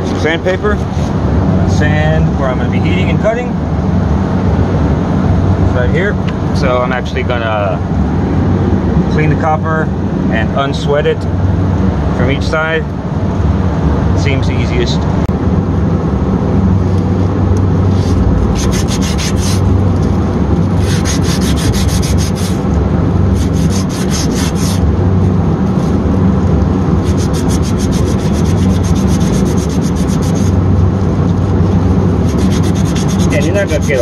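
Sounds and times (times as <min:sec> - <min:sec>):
low machinery hum: 0:00.0 - 0:34.0
sandpaper rasping on copper pipe: 0:17.9 - 0:19.7, 0:20.8 - 0:22.6, 0:23.3 - 0:24.8, 0:27.0 - 0:30.6, 0:32.2 - 0:34.0.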